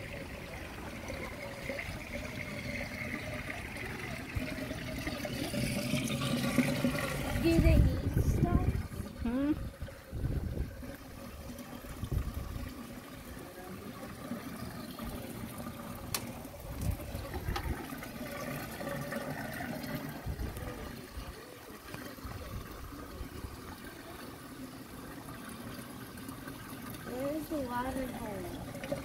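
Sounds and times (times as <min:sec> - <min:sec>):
water running along wooden trough: 0:00.0 - 0:29.0.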